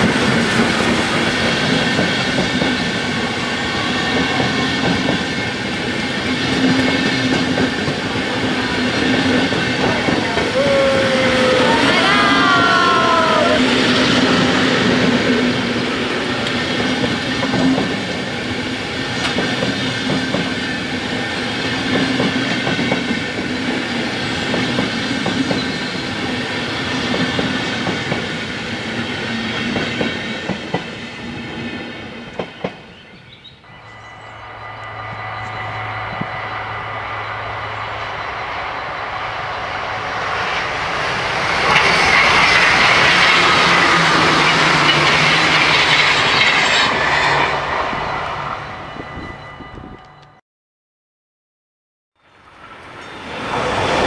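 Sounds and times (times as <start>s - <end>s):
train wheels clacking over rails: 0.0s - 11.6s, 12.4s - 32.9s, 37.6s - 47.8s
electric train approaching: 0.0s - 50.4s, 52.2s - 54.0s.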